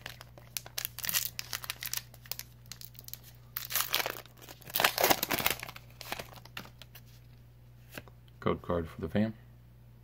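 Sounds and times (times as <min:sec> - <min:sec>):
foil wrapper tearing and crinkling: 0:00.0 - 0:06.9.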